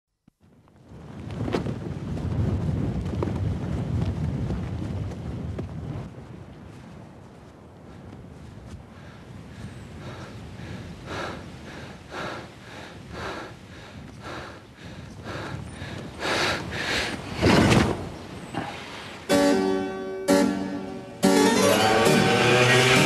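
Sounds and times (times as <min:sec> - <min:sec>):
soft rhythmic swells: 0:19.2 - 0:23.0
piano-like keyboard music: 0:19.3 - 0:23.0.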